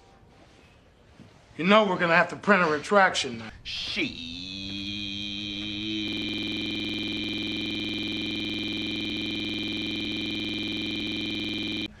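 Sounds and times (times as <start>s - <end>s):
pulsing electronic buzz: 4.1s - 12.0s.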